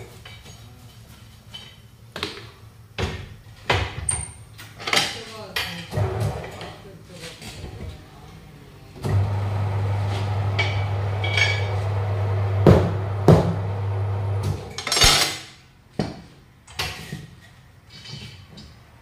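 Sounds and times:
turntable motor humming: 9.0 - 14.7.

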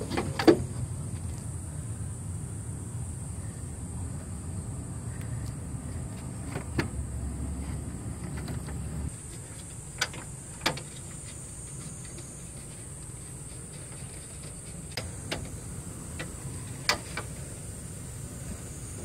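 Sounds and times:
steady hiss: 0.0 - 19.0
sharp clicks and knocks: 8.2 - 17.4.

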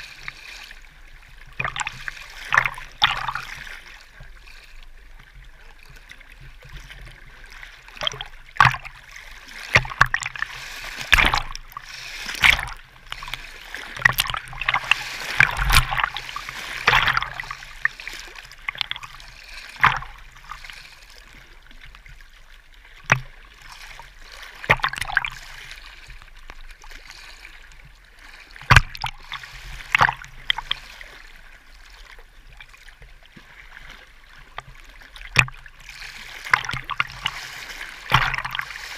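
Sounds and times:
small waves lapping and splashing: 0.0 - 38.9
sharp slaps of water: 9.7 - 10.4, 11.0 - 12.8, 14.0 - 17.6, 24.6 - 25.4, 28.6 - 30.8, 38.0 - 38.9.

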